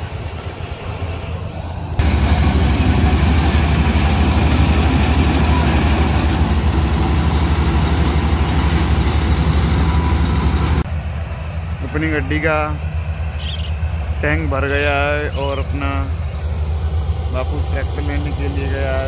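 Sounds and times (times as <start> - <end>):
combine harvester diesel engine: 0.0 - 19.0
machinery clatter: 2.0 - 10.9.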